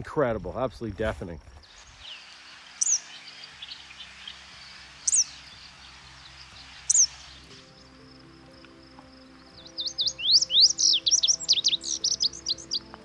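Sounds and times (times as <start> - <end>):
faint bird chips: 1.6 - 4.4
songbird high downward calls: 1.6 - 13.0.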